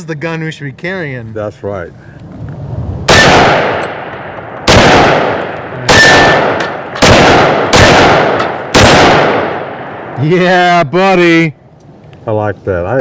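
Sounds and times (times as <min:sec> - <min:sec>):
pistol shots with echo: 0:03.1 - 0:10.2.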